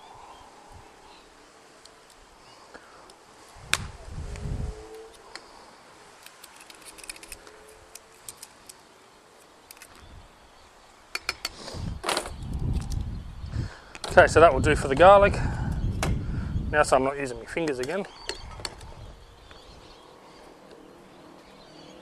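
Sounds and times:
metallic ticks and scrapes: 0:06.2 - 0:08.8.

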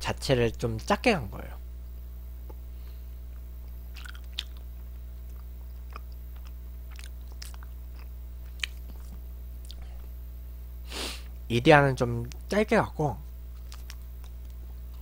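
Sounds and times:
steady electrical hum: 0:00.0 - 0:15.0
wet chewing clicks: 0:03.9 - 0:09.9, 0:13.5 - 0:15.0.

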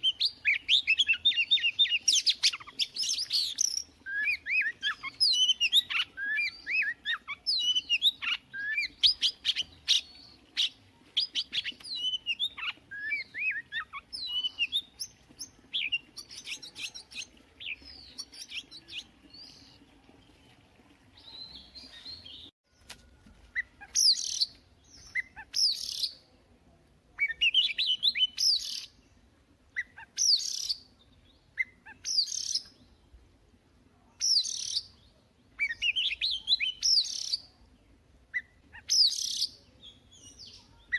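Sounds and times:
bird singing whistles and clicks: 0:32.0 - 0:32.8.

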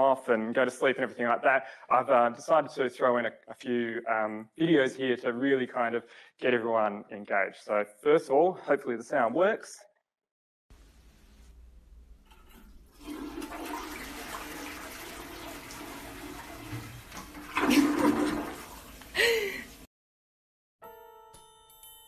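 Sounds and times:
toilet flushing: 0:12.3 - 0:19.9.

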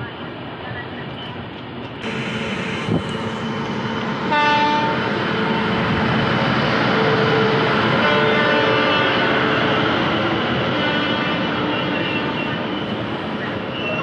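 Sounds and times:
trains running on tracks: 0:00.0 - 0:14.0
train horn: 0:02.0 - 0:06.1, 0:06.9 - 0:12.6.

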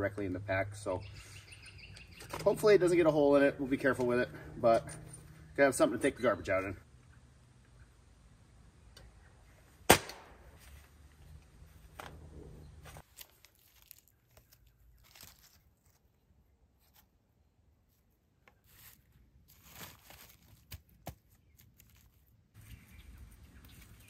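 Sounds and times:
charcoal crunching and clicking: 0:13.0 - 0:16.1.

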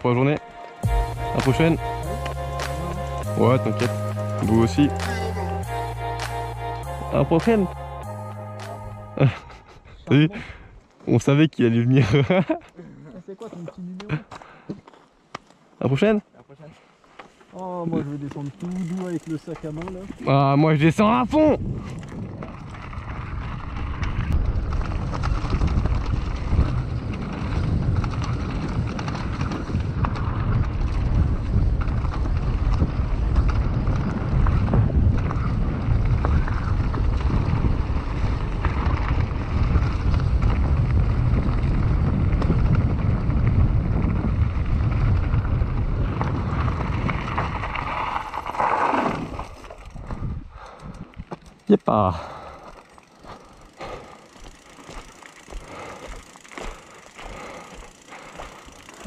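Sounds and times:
tyres crunching over gravel: 0:17.0 - 0:20.6, 0:51.3 - 0:59.0
bike rattling over bumps: 0:17.6 - 0:59.0
wind buffeting microphone: 0:18.6 - 0:59.0.

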